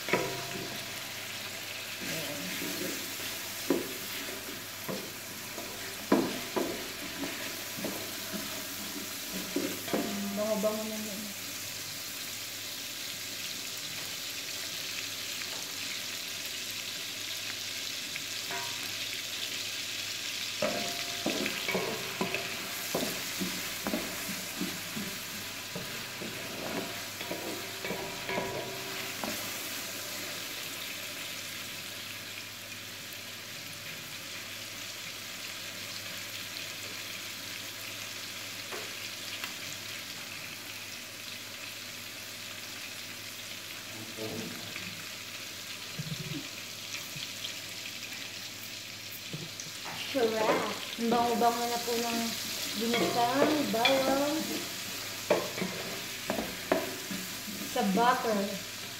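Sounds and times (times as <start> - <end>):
onions sizzling in butter: 0.0 - 58.9
wooden spatula knocking on pot: 6.0 - 8.6, 20.6 - 29.5.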